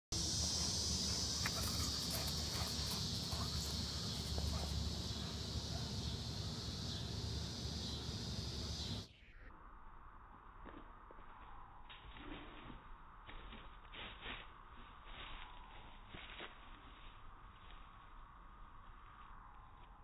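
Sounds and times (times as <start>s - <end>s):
chorus of insects: 0.1s - 9.1s.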